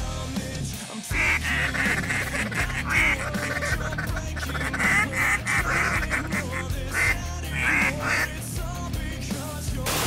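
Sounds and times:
background music with low bass: 0.0 - 10.0
waterfowl quacking and honking: 1.1 - 8.4.

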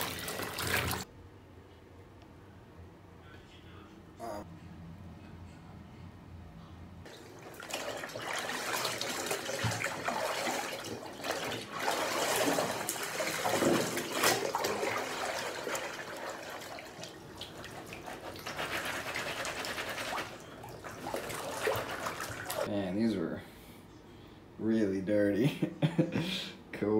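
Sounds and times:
water streaming off fabric: 0.0 - 1.0, 7.1 - 22.7
water sloshing and splashing: 0.0 - 1.1, 7.1 - 22.7.

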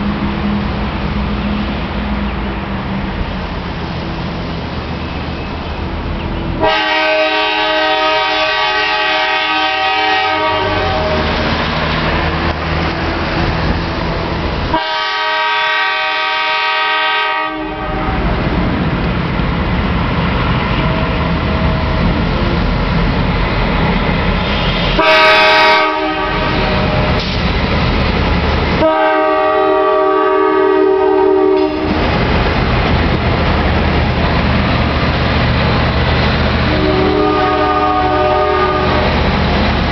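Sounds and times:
locomotive horn blasts: 6.6 - 11.3, 14.7 - 18.4, 24.6 - 27.2, 28.8 - 32.0, 36.7 - 39.0.

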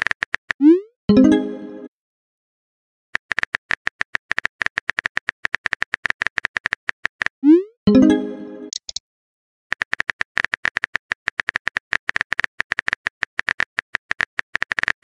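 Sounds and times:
message chime: 1.1 - 1.9, 7.9 - 8.8
keyboard tapping clicks: 8.7 - 9.0.

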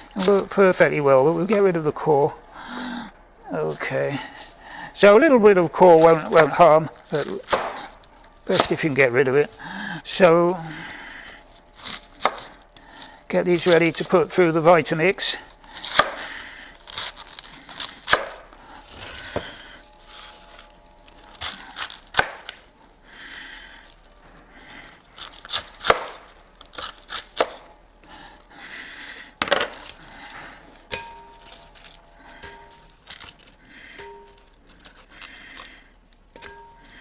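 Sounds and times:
cabbage leaves crunching: 5.3 - 9.8, 13.3 - 14.6.

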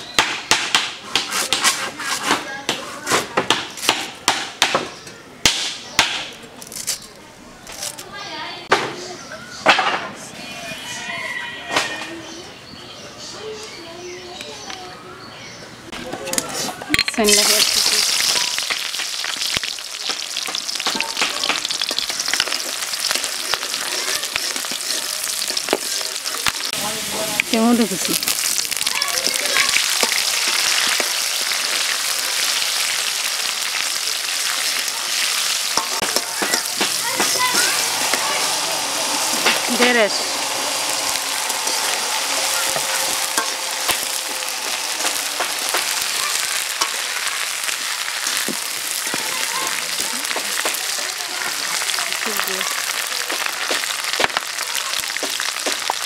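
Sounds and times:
onions sizzling in hot oil: 16.3 - 56.0
metal spatula scraping pan: 21.8 - 26.7, 35.1 - 47.1.

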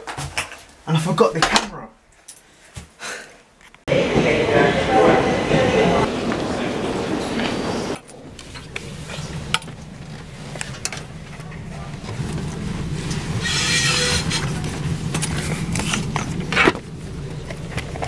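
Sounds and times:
train carriage hum: 3.9 - 18.0.

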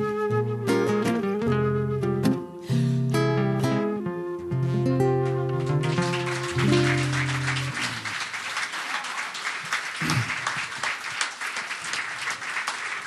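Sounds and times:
audience applause: 5.6 - 13.0.

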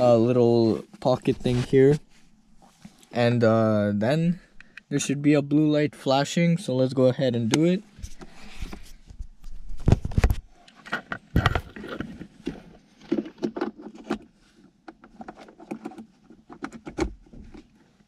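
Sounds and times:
plastic clicks and knocks: 9.8 - 17.7.

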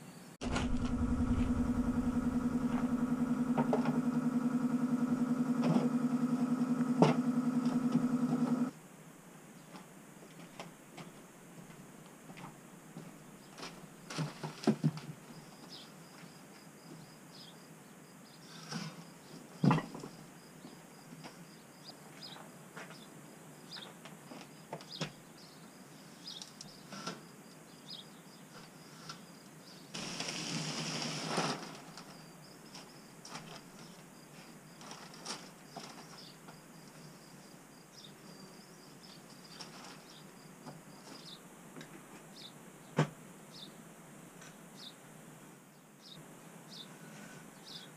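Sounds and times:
rustling rush: 0.4 - 6.6
faint high insect trill: 15.2 - 41.5.

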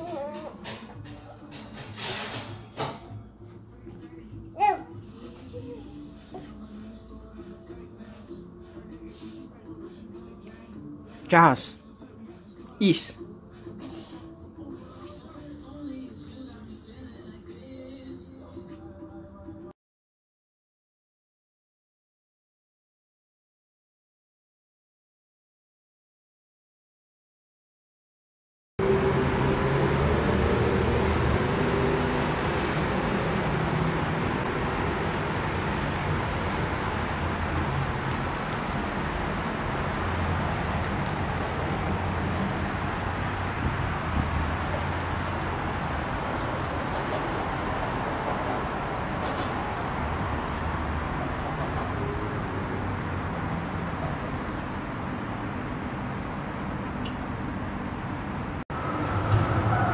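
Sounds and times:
city road traffic: 28.8 - 59.9.

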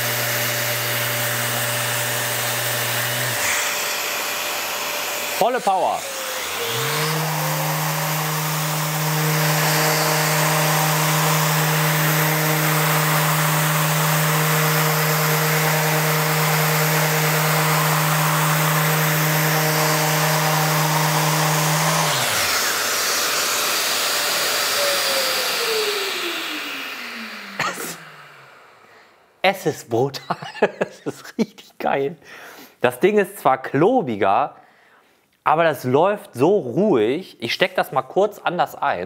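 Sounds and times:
orbital sander on wood: 0.0 - 29.2
dust extractor whine: 0.0 - 29.3.

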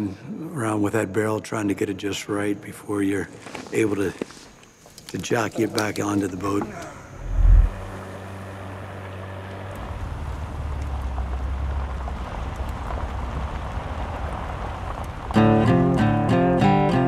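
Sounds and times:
low rumble: 7.0 - 8.8
acoustic guitar music: 15.4 - 17.0.

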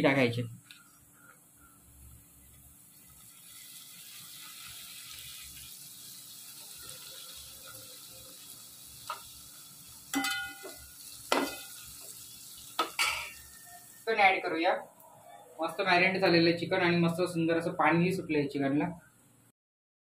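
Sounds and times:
oil sizzling in a pot: 1.6 - 14.5
metal ladle clanking against pot: 10.1 - 11.6.

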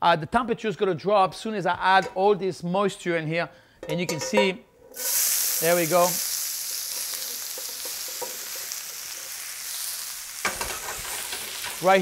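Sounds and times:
onions sizzling in oil: 4.9 - 12.0.

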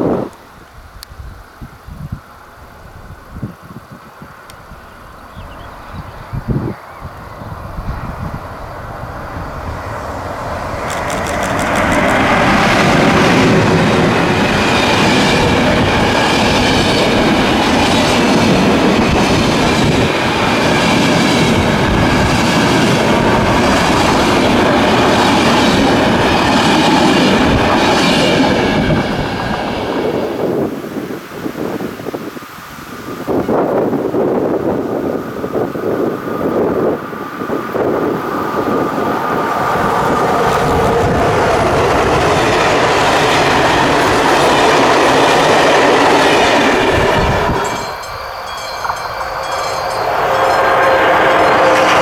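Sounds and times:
train wheels rumbling and clattering: 7.6 - 30.7, 34.3 - 52.0.

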